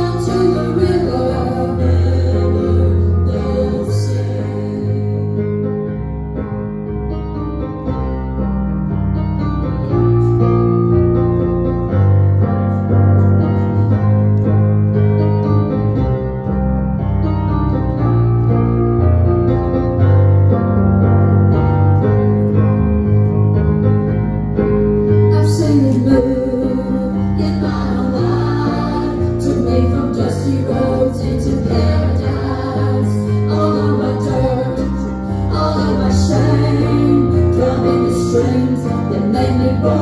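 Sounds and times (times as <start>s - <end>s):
bass line: 0.0s - 40.0s
keyboard chords: 0.0s - 40.0s.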